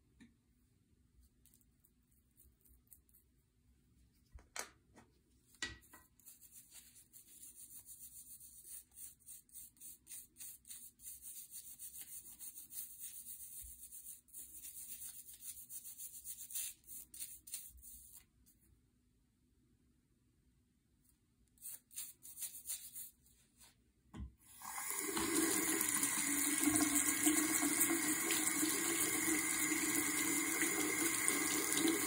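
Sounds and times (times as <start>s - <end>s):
toothbrush scrubbing metal: 6.0s - 18.3s, 21.6s - 23.2s.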